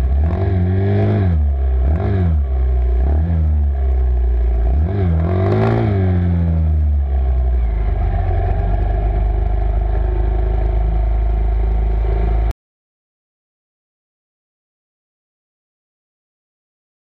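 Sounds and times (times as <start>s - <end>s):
off-road vehicle engine revving: 0.0s - 12.5s.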